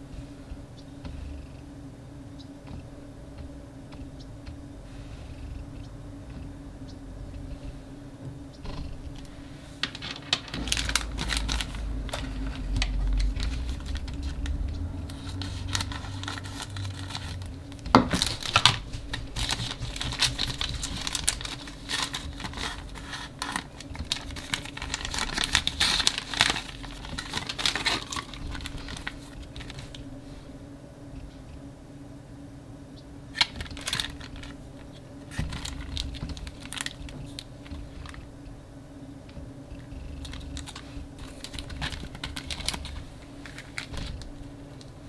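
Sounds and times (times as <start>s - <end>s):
plastic packet crinkling: 9.1s - 30.1s, 33.3s - 38.3s, 39.8s - 44.9s
plastic snapping: 33.4s - 38.2s.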